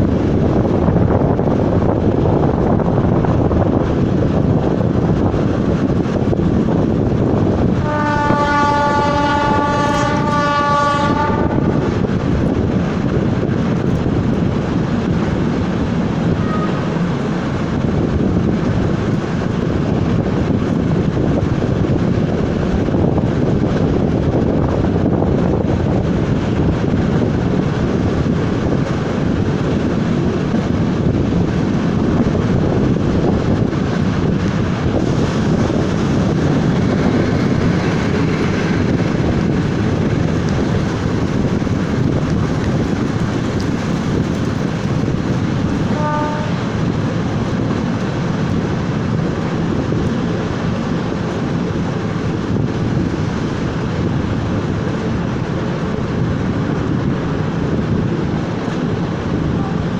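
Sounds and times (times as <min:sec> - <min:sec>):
train rumbling along track: 0:00.0 - 0:59.9
train horn: 0:07.8 - 0:11.9, 0:16.4 - 0:16.9, 0:45.8 - 0:47.0.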